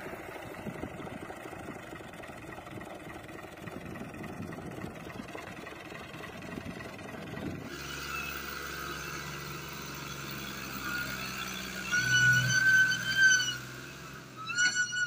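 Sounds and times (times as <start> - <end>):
tractor diesel engine under load: 0.0 - 15.0
high whining tone: 7.5 - 15.0.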